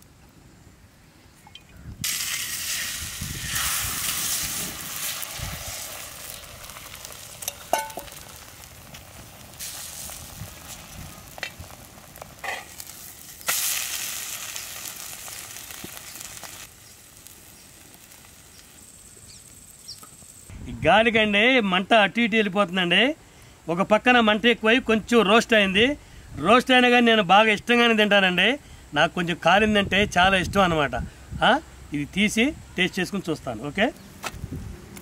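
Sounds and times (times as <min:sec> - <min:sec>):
omelette batter sizzling: 0:02.0 - 0:20.5.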